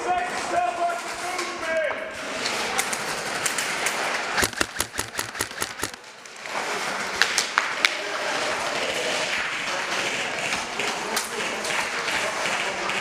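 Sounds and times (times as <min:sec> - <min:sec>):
single airsoft shots: 0:04.4 - 0:06.0
airsoft rifle rapid fire: 0:04.4 - 0:06.1.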